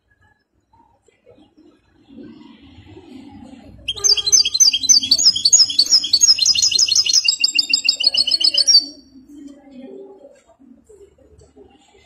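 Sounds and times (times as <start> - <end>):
goldfinch twittering song: 3.9 - 9.0.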